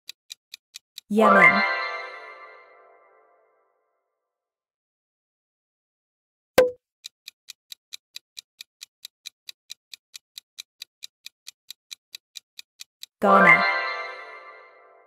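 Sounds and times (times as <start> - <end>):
clock ticking sound effect: 0.1 - 1.7, 6.6 - 13.9.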